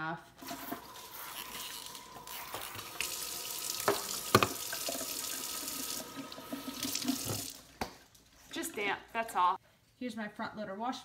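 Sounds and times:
water running from faucet sprayer: 0.4 - 7.7.

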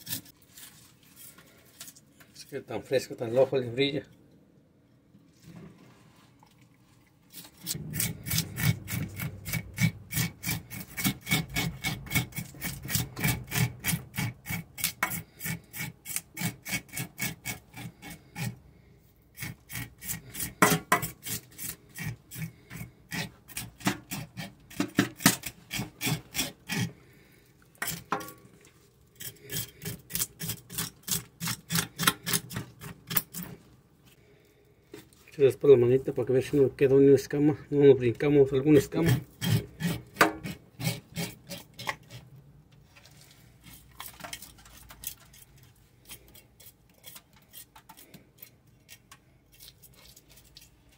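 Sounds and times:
metal scraper scraping fish scales: 0.0 - 2.0, 7.3 - 18.6, 19.3 - 27.0, 27.8 - 28.4, 29.1 - 33.6, 38.7 - 42.3, 43.6 - 50.7.

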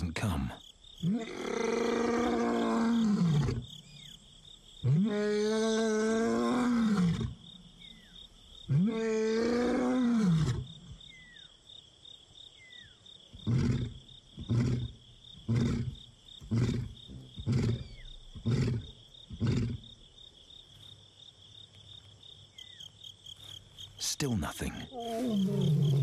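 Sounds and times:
insect trill: 0.0 - 26.0
lion roaring and grunting: 1.0 - 3.7, 4.9 - 7.4, 8.7 - 10.7, 13.4 - 19.9, 24.9 - 26.0.

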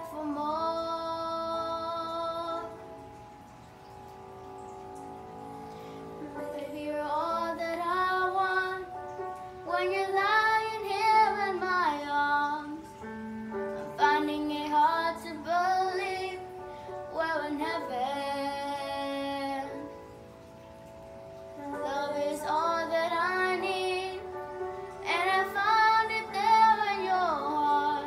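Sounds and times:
sustained accompaniment chords: 0.0 - 10.8
girl singing slow melody: 0.0 - 28.0.

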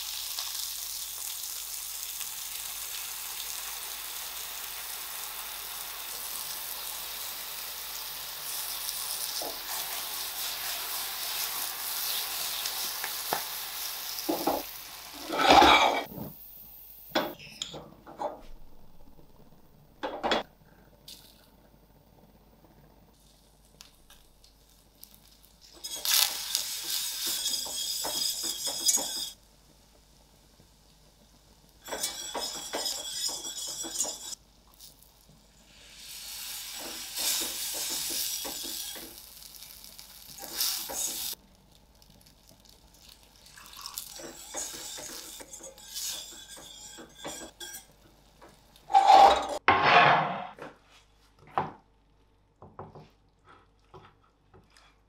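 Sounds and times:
whisk scraping a metal pan: 15.2 - 16.1, 25.8 - 29.4, 31.8 - 34.4, 44.2 - 48.0, 48.8 - 50.1.

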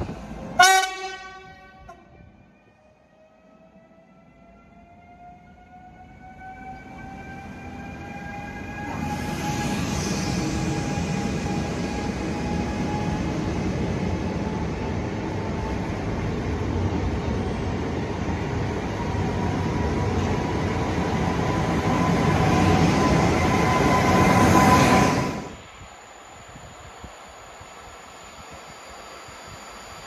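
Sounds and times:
electric train rumbling: 0.0 - 30.0.

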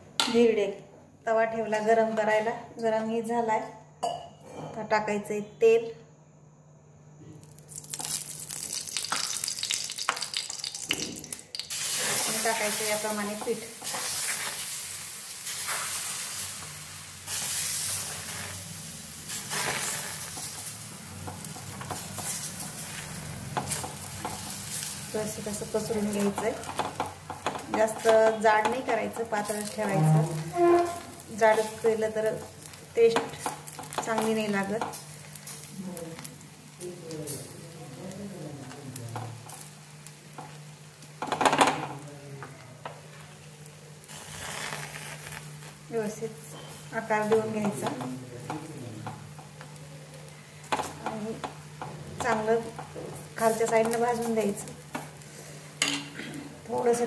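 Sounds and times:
batter sizzling on hot griddle: 7.4 - 57.0
spoon scraping batter on hot pan: 13.4 - 14.7, 21.3 - 24.9.

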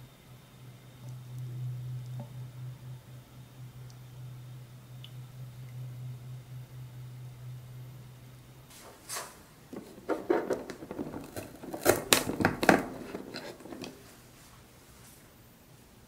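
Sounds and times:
skewer scraping into cardboard: 8.7 - 14.0.

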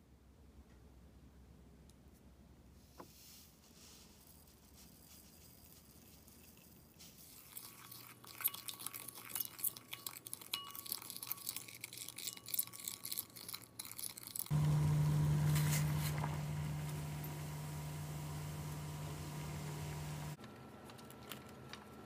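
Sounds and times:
pot of water boiling: 14.0 - 20.4
steady low hum: 14.5 - 20.4.

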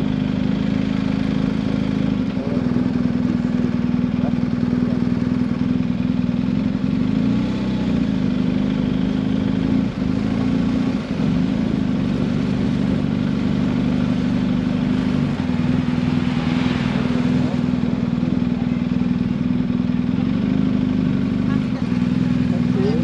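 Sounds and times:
motorcycle engine running: 0.0 - 23.0.

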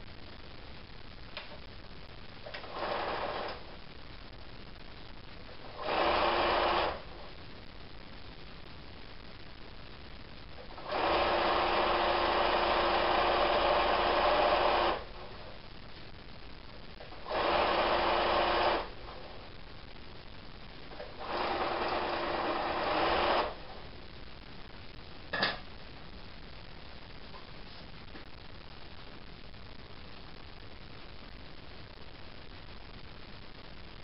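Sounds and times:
sewing machine stitching: 2.5 - 3.6, 5.8 - 7.0, 10.7 - 15.1, 17.2 - 18.9, 21.0 - 23.6.

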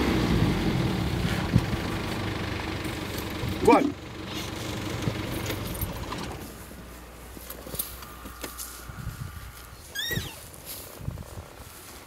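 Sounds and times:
vehicle engine idling: 0.0 - 12.0
dry brush rustling and cracking: 4.2 - 12.0.

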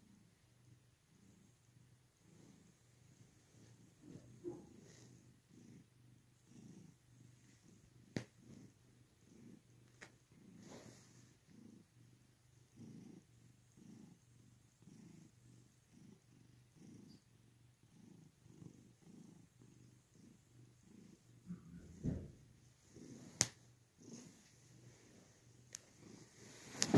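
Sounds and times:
cat purring: 0.0 - 26.9
thump: 21.9 - 22.4.

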